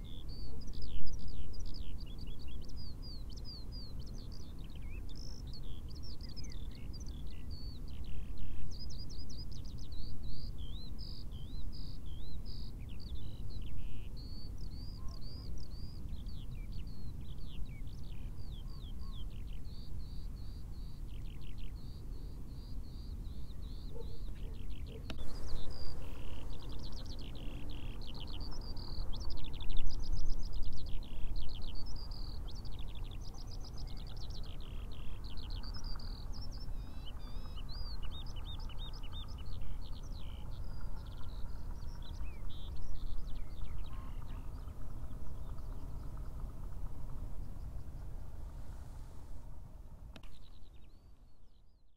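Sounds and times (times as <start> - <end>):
songbird singing: 0.0 - 51.9
steady low rumble: 25.1 - 51.6
brief sharp click: 50.1 - 50.4.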